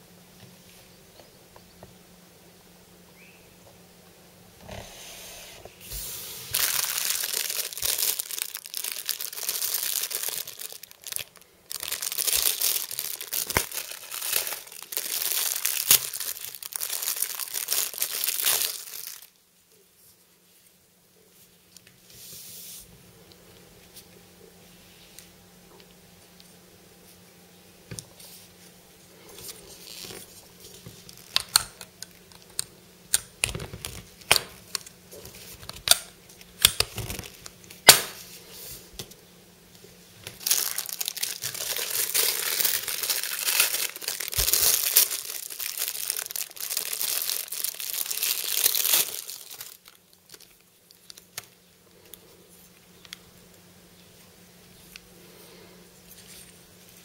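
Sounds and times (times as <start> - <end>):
plastic bag crinkling and tearing: 6.5 - 19.4, 29.5 - 32.6, 33.4 - 38.2, 40.2 - 52.1.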